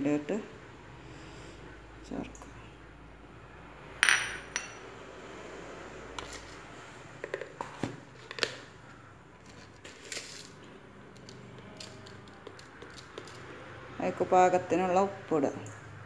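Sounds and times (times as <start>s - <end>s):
spoon clicking on containers: 11.1s - 13.6s.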